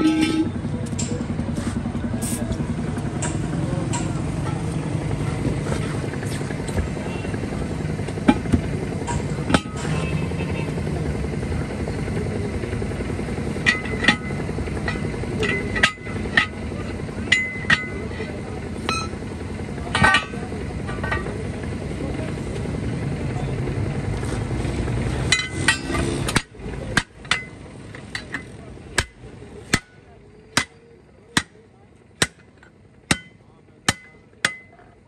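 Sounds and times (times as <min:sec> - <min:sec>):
low engine drone: 0:00.0 - 0:35.0
metal ring clinking on steel rim: 0:13.6 - 0:16.6, 0:17.3 - 0:18.1, 0:18.8 - 0:19.2, 0:25.3 - 0:26.2.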